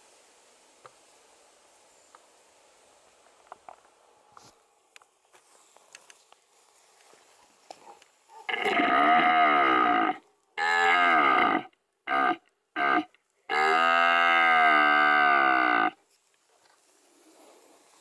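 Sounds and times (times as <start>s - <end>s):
deer stag roaring: 8.5s - 16.0s.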